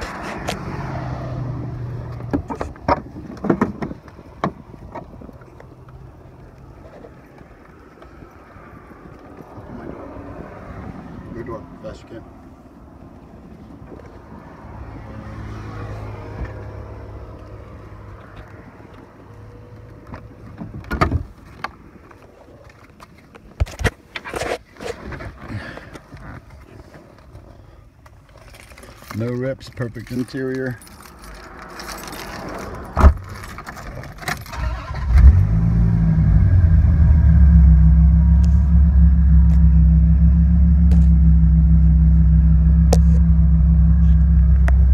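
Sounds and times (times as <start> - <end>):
car engine idling: 34.6 - 44.9.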